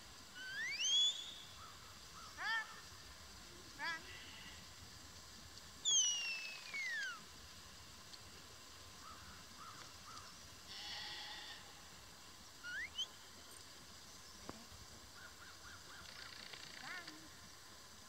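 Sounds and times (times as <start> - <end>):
whistle sliding down in pitch: 0.4 - 1.2, 5.9 - 7.2, 12.7 - 13.1
short rising whistle: 5.9 - 7.2.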